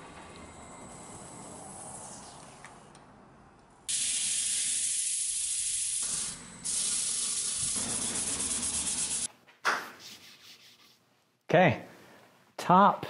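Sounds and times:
sandpaper hissing on spinning wood: 3.9 - 9.3.

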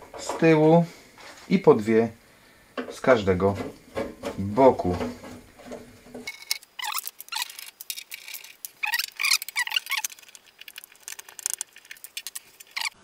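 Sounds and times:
screwdriver squeaky scraping and clicks: 6.3 - 13.0.

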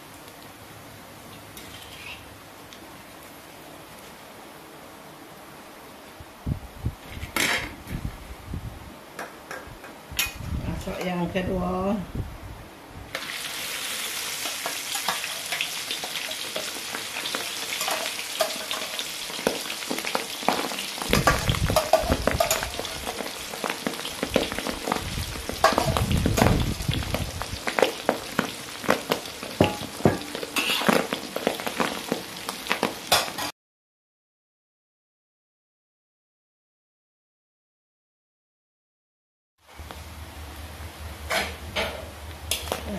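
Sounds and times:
meat deep-frying in oil: 0.0 - 4.0, 13.1 - 33.5.

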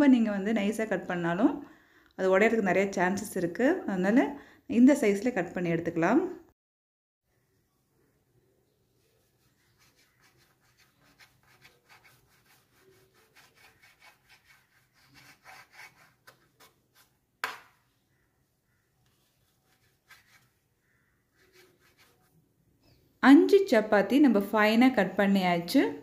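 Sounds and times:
knife scraping cuts: 9.8 - 17.7, 19.4 - 20.6, 21.3 - 22.3.

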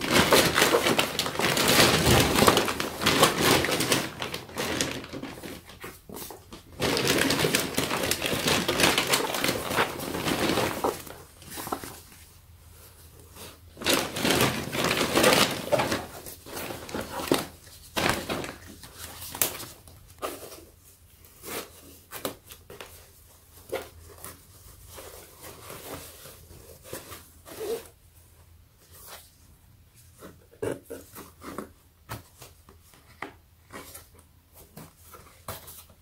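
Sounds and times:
packaging rustling and crinkling: 0.0 - 28.0.

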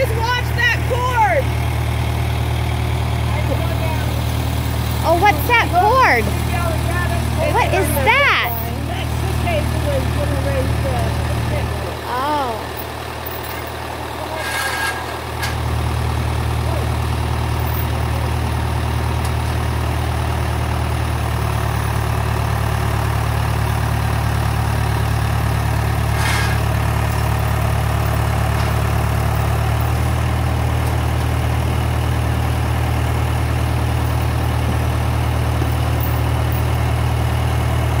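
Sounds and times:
tractor engine idling: 0.0 - 38.0.

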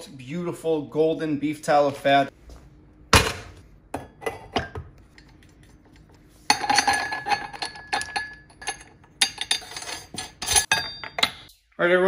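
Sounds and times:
metal parts clinking: 6.6 - 11.5.

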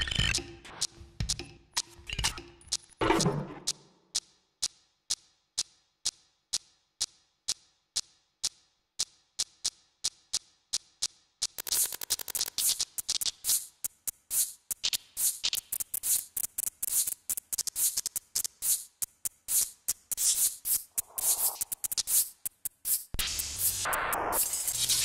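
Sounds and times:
abstract electronic music: 0.0 - 3.9, 20.9 - 22.1, 23.2 - 25.0.

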